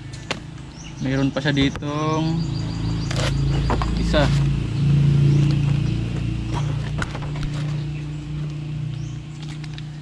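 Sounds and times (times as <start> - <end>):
steady low hum: 0.0 - 10.0
cardboard and plastic packaging rustling: 6.5 - 7.9.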